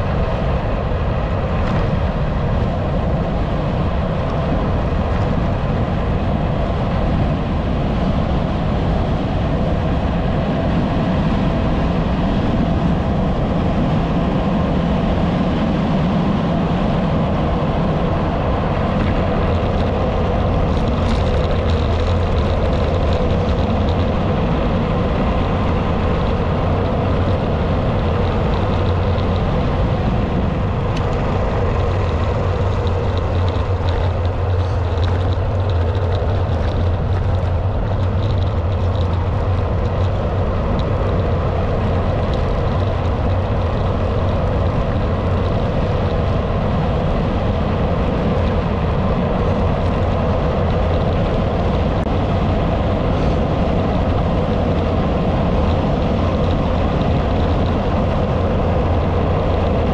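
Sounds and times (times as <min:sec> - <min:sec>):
road noise: 0:00.0 - 0:59.9
wind rush on microphone: 0:00.0 - 0:59.9.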